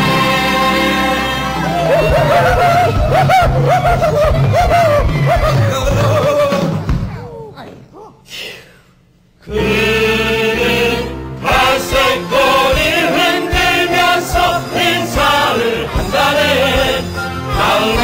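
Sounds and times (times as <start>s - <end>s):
chorus singing: 0.0s - 4.2s, 9.4s - 18.0s
instrumental accompaniment with beat: 11.4s - 18.0s.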